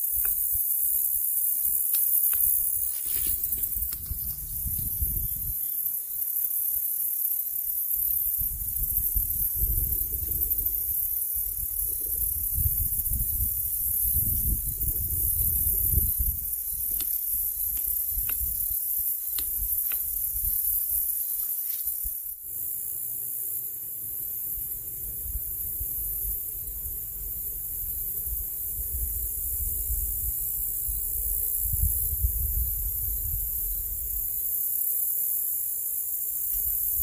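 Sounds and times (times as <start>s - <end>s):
steady high hiss: 0.0s - 37.0s
wind rumbling on microphone: 2.5s - 5.7s, 8.1s - 21.2s, 24.6s - 34.5s.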